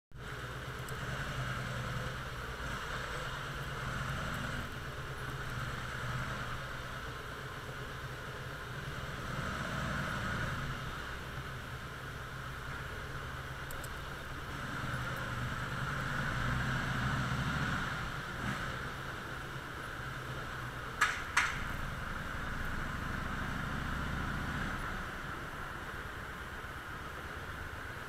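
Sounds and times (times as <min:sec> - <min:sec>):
motorcycle engine revving: 0:00.2 - 0:25.7
sharp clacks: 0:21.0 - 0:21.8.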